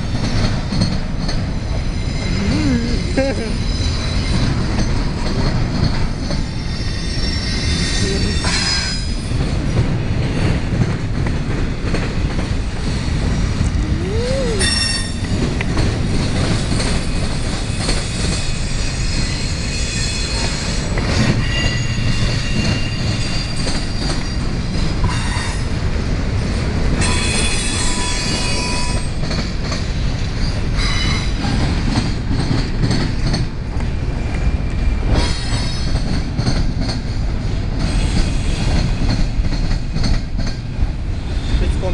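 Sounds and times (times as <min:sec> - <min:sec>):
train wheels rumbling on rails: 0:00.0 - 0:41.9
high-pitched wheel squeal: 0:01.7 - 0:03.0.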